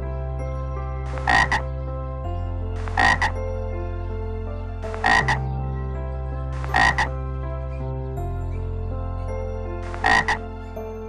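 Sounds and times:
tree frog croaking: 1.1 - 1.7, 2.8 - 3.4, 4.9 - 5.4, 6.6 - 7.2, 9.8 - 10.5.

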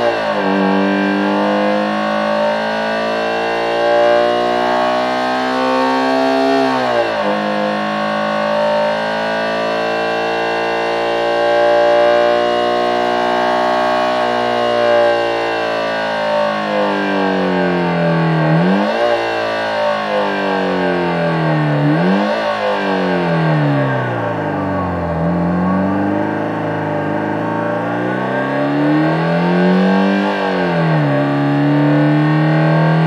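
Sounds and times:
synthesized engine howl at high revs: 0.0 - 33.0.

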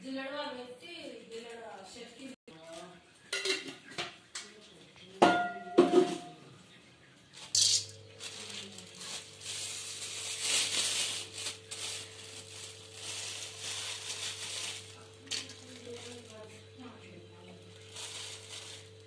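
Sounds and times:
crackling and sizzling frying: 7.4 - 19.0.

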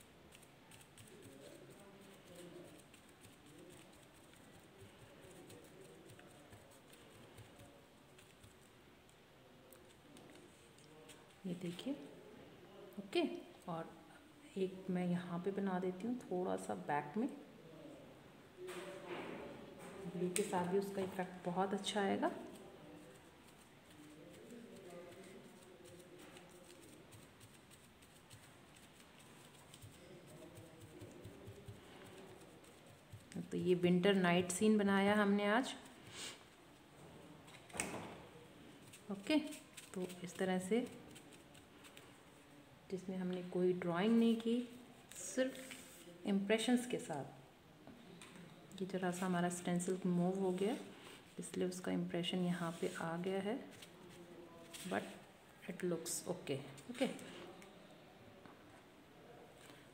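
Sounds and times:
sponge dabbing on paper: 0.0 - 11.8, 20.3 - 36.5, 38.5 - 42.4, 44.7 - 46.1, 52.5 - 53.0.

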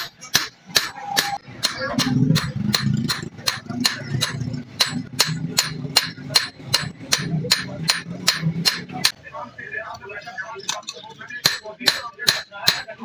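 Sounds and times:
hammer striking hot steel on anvil: 0.0 - 9.2, 11.4 - 13.0.

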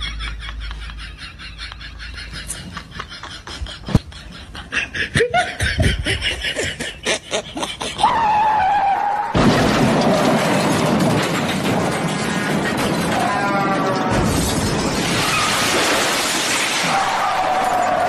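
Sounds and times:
people laughing and giggling: 0.0 - 8.4.

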